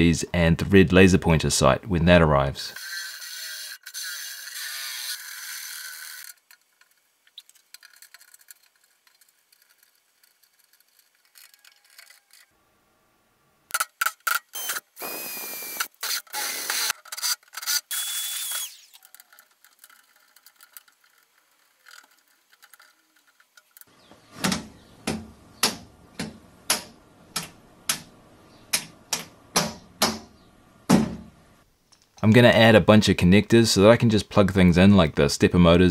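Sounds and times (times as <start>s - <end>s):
drill boring through sheet metal: 2.8s - 6.3s, 14.6s - 19.1s.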